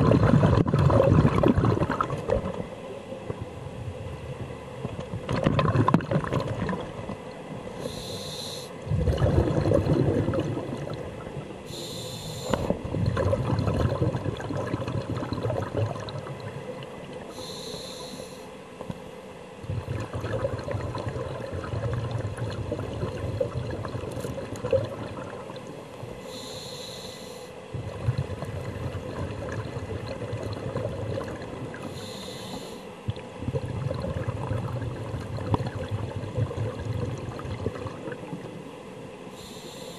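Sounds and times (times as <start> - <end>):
exhaled bubbles: 0.0 - 3.4, 4.8 - 8.1, 8.8 - 17.6, 19.6 - 26.4, 27.7 - 38.7
regulator inhalation hiss: 7.8 - 8.8, 11.7 - 12.7, 17.3 - 18.5, 26.2 - 27.6, 31.9 - 32.9, 39.3 - 39.9.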